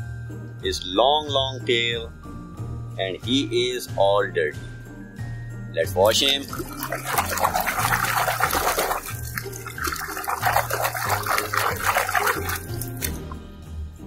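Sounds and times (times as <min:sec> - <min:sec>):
hand splashing water in tub: 0:06.1 - 0:13.4.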